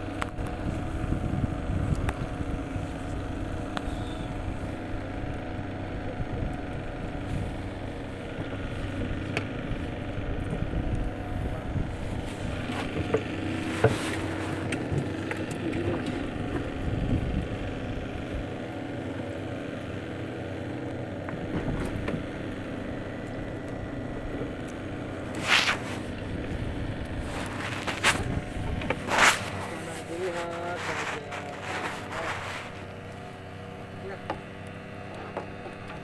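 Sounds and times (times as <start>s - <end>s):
low motor hum: 0.0s - 36.0s
loud rustle: 11.9s - 15.2s, 25.2s - 26.3s, 27.1s - 33.5s.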